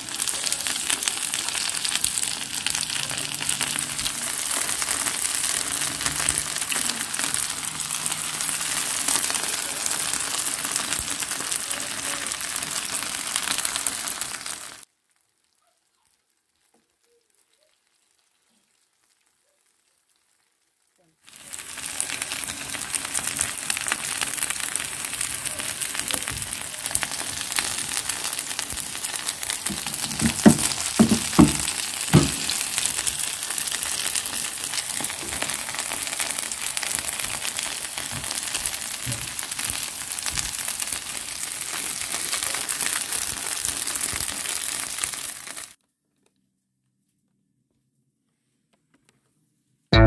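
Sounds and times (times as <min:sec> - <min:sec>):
patties sizzling in oil: 0:00.0 - 0:45.8
louder knocks: 0:29.7 - 0:32.6.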